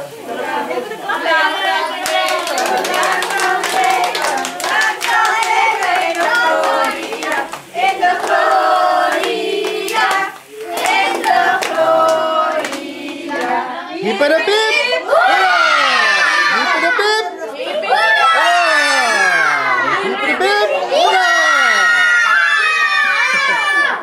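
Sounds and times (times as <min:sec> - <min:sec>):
group of people singing: 0:00.0 - 0:17.1
hands clapping in a beat: 0:02.0 - 0:13.6.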